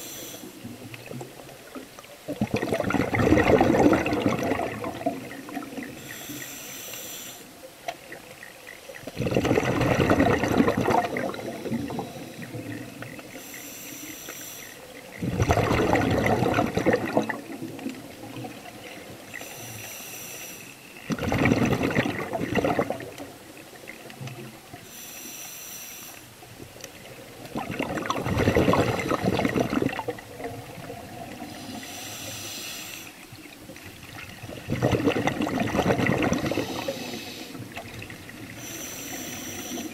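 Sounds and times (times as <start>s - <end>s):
regulator inhale hiss: 0.0s - 0.7s, 5.8s - 7.7s, 11.4s - 15.1s, 19.3s - 21.0s, 24.7s - 26.4s, 31.4s - 33.3s, 36.4s - 37.8s, 38.4s - 39.9s
exhaled bubbles gushing: 0.6s - 6.0s, 8.0s - 13.3s, 15.0s - 19.3s, 21.0s - 24.8s, 27.0s - 31.6s, 33.4s - 38.6s.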